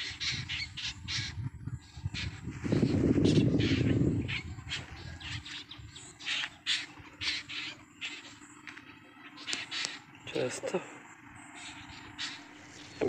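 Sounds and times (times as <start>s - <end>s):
birds calling: 0.0s - 13.0s
crows cawing: 3.2s - 13.0s.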